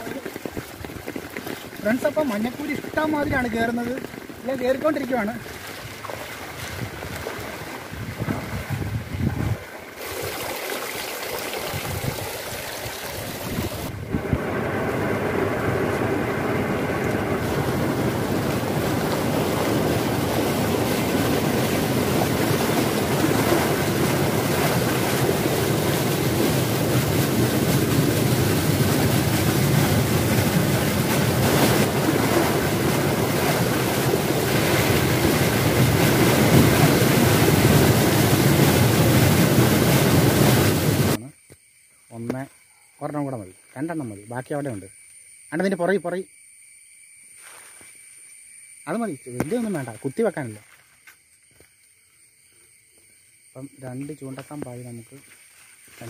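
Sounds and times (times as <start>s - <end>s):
rain: 0.0s - 8.3s, 9.6s - 41.2s
overflowing stream rushing: 9.7s - 41.2s.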